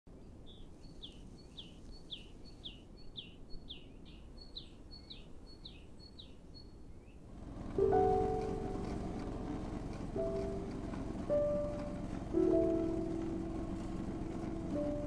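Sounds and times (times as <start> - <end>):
small bird calling: 0.4 - 7.2.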